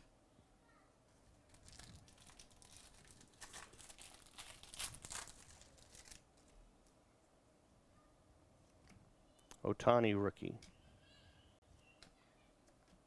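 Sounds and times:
plastic wrapper tearing and crinkling: 0:01.5 - 0:06.3.

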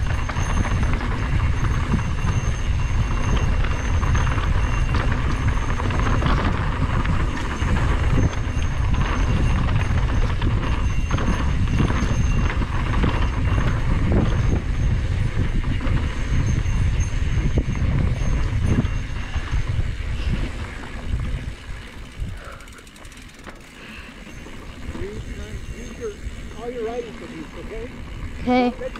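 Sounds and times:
wind rushing over microphone: 0:00.0 - 0:22.7
bike rattling over bumps: 0:00.0 - 0:28.9.

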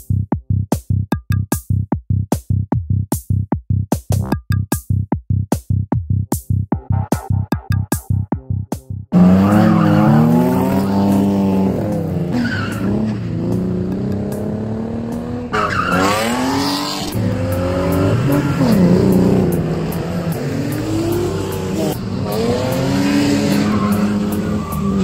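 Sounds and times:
electronic music beat: 0:00.0 - 0:25.0
car engine revving hard: 0:09.1 - 0:25.0
tyres squealing: 0:09.2 - 0:11.2, 0:15.5 - 0:16.6, 0:23.0 - 0:25.0.

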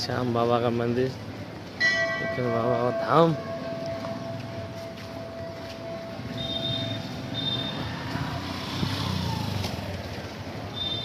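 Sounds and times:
low traffic rumble: 0:00.0 - 0:11.0
temple bell hum: 0:01.8 - 0:06.4.

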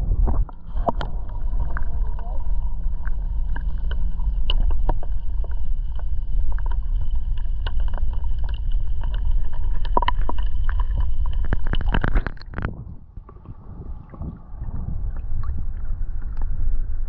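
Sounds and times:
wind buffeting the microphone: 0:00.0 - 0:02.5, 0:11.5 - 0:17.0.

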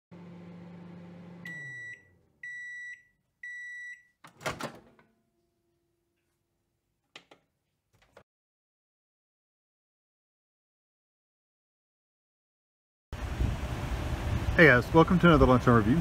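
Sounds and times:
microwave oven humming: 0:00.1 - 0:05.4
microwave beeps: 0:01.1 - 0:04.2
microwave door popping open: 0:04.3 - 0:05.1.

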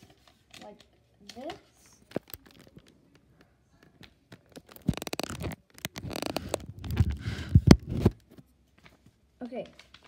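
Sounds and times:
phone handling rubbing and scraping: 0:04.6 - 0:08.2.

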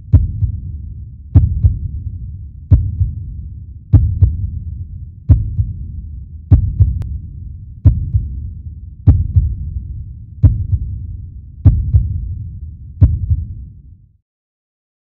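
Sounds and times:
steady low rumble: 0:00.0 - 0:14.2
heartbeat thumps: 0:00.1 - 0:00.7, 0:01.3 - 0:02.0, 0:02.7 - 0:03.3, 0:03.9 - 0:04.6, 0:05.3 - 0:05.9, 0:06.5 - 0:07.1, 0:07.8 - 0:08.4, 0:09.0 - 0:09.8, 0:10.4 - 0:11.0, 0:11.6 - 0:12.3, 0:13.0 - 0:13.6.

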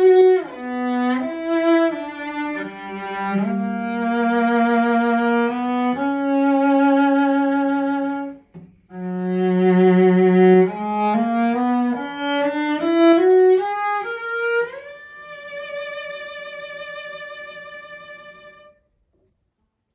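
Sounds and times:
cello bowed with vibrato: 0:00.0 - 0:18.8.

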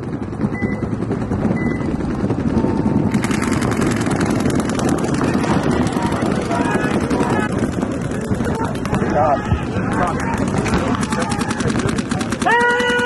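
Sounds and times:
paintball markers firing: 0:07.0 - 0:13.0.

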